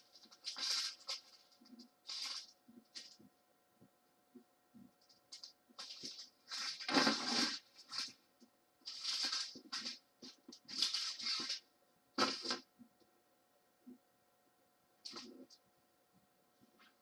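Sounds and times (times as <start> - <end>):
plastic bags crinkling: 0.0 - 3.2, 5.3 - 8.2, 8.8 - 11.6.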